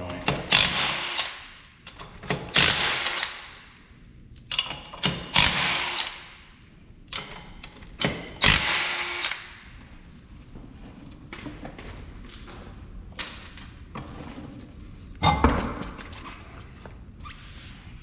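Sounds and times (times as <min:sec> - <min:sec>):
impact wrench spinning lug nuts: 0:04.5 - 0:06.3.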